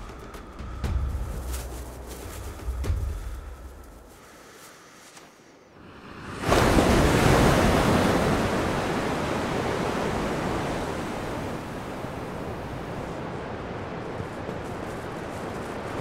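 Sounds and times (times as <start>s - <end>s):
waves breaking on beach: 5.8s - 16.0s.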